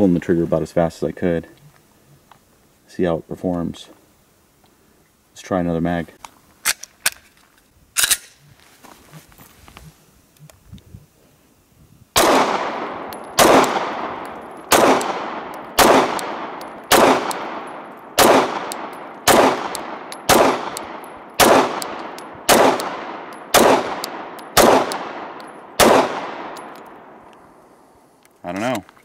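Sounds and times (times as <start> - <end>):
pistol shots with echo: 12.2 - 27.1.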